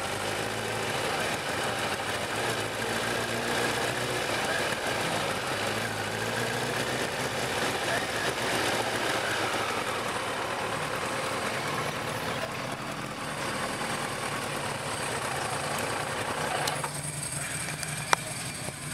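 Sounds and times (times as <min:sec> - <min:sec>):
motorcycle engine at low revs: 0:00.0 - 0:18.9.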